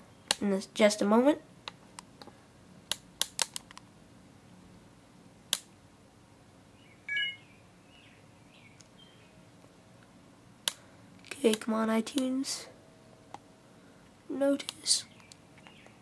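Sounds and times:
brief high chirp: 7.1 - 7.5
sharp clicks: 10.6 - 12.3.

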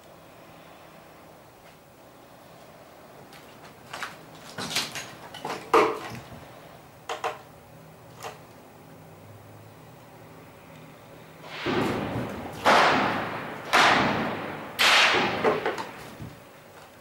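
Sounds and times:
gunshots: 11.4 - 16.2.

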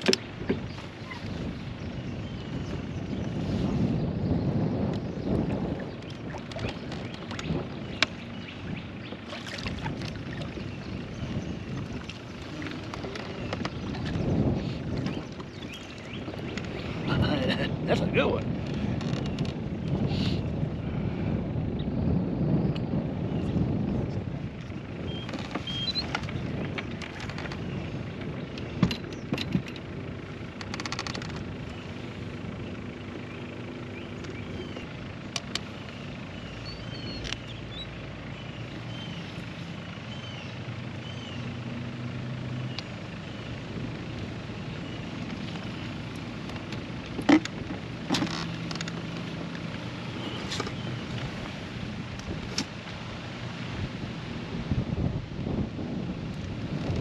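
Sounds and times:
low motor hum: 0.0 - 57.0
wind on microphone: 0.0 - 57.0
small birds chirping: 0.1 - 18.4, 24.6 - 29.7, 31.6 - 41.8, 48.2 - 51.8.

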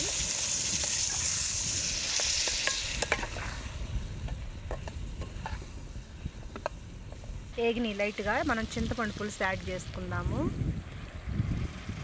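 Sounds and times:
vegetables sizzling in oil: 0.0 - 6.1, 7.1 - 10.4.

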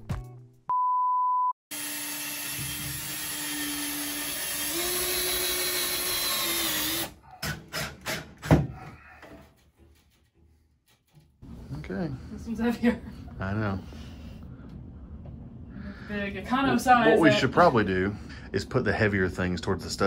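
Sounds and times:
cordless drill whining: 1.7 - 7.2.

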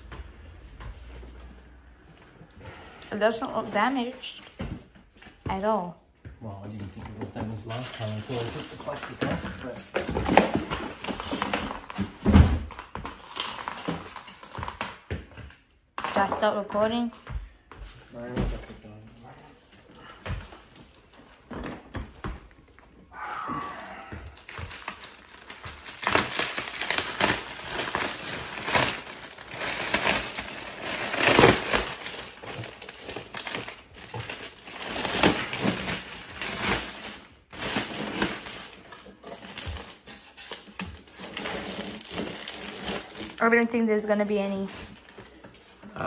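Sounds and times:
plastic wrapping crinkling: 7.6 - 16.9, 23.8 - 45.8.

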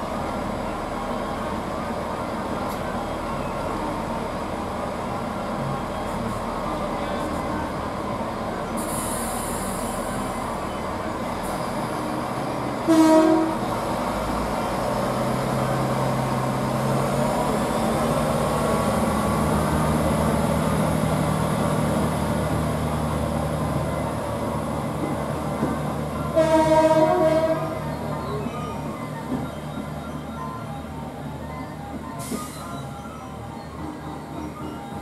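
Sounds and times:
diesel train engines whining: 0.0 - 35.0
train horn blast: 12.8 - 13.7, 26.3 - 27.8.

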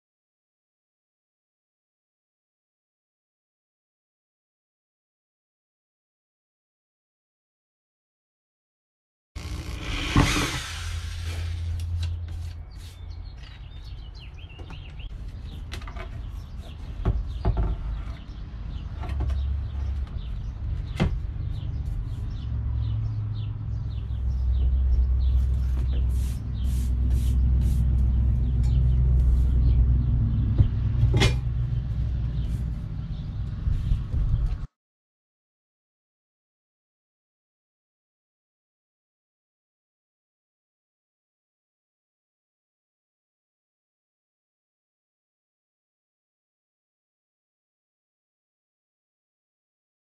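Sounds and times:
cordless drill driving screw: 9.4 - 12.1.

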